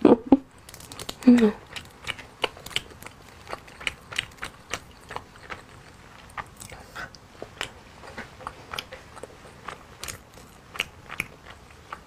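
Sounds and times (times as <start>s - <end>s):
shell cracking and crackling: 0.6s - 4.8s
chewing: 0.7s - 12.0s.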